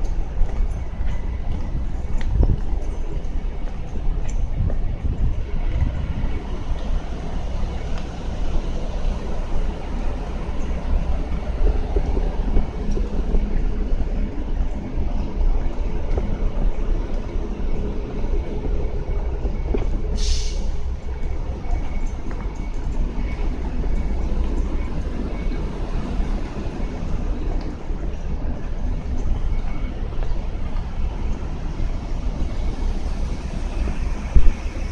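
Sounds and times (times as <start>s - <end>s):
low rumble of road traffic: 0.0s - 34.9s
station noise: 0.0s - 34.9s
short hiss: 20.2s - 20.8s.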